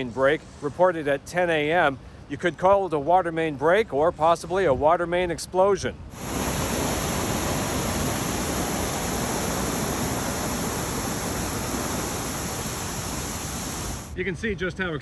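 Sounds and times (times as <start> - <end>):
water spray rushing: 6.1 - 14.2.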